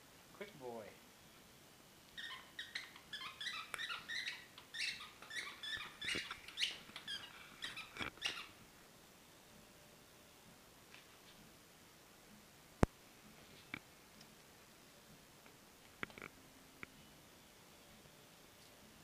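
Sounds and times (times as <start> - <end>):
squeaky toy squeaks: 2.2 - 8.6.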